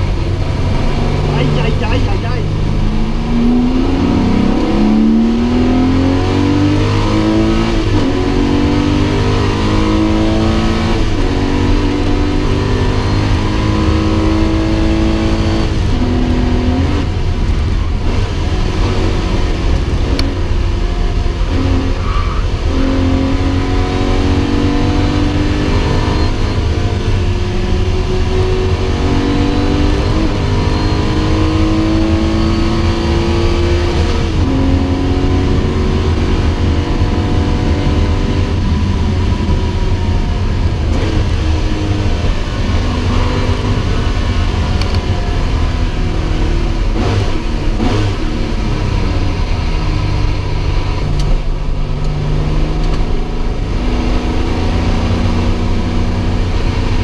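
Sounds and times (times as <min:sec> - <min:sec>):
car engine accelerating through gears: 0:00.0 - 0:57.0
tyre and road noise: 0:00.0 - 0:57.0.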